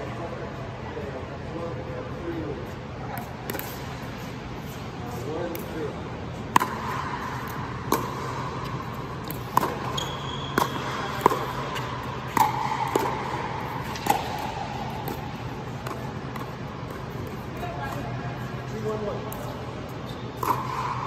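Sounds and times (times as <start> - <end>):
steady low hum: 0.0 - 21.0
ball bouncing on hard court: 3.1 - 4.1, 5.4 - 21.0
paddles hitting plastic ball: 6.5 - 18.0.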